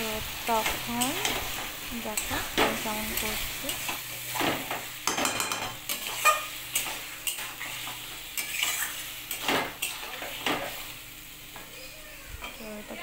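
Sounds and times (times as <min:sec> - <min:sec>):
fish frying: 0:00.0 - 0:13.0
metal spatula scraping a pan: 0:05.9 - 0:10.8.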